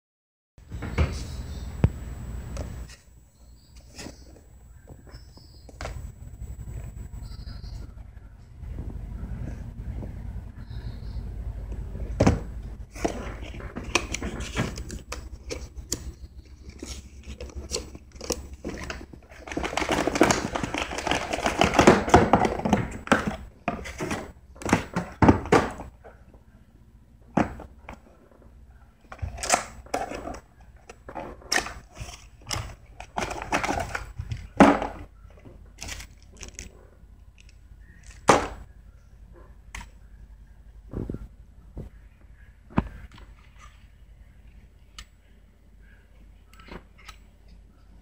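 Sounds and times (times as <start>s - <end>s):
cardboard rustling and scraping: 12.1s - 25.9s.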